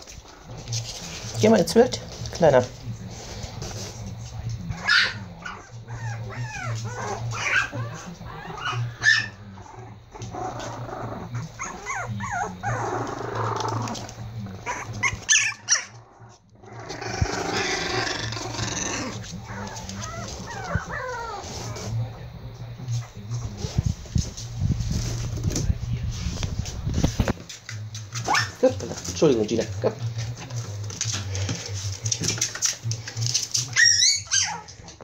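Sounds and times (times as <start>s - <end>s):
puppies growling: 0.0s - 35.0s
puppies yipping and whining: 4.7s - 22.0s, 28.2s - 28.7s, 33.6s - 35.0s.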